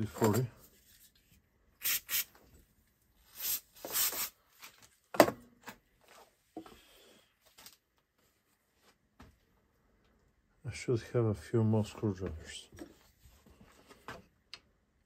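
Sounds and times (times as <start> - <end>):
aerosol spray hissing: 1.8 - 2.4.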